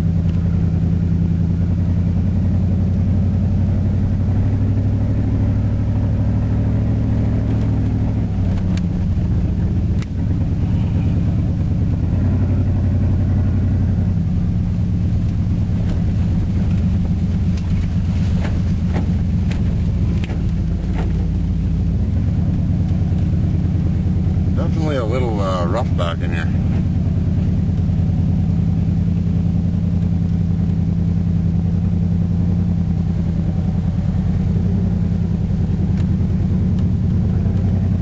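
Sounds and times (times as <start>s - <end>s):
truck engine running: 0.0s - 38.0s
cab knocks over bumps: 15.6s - 21.2s.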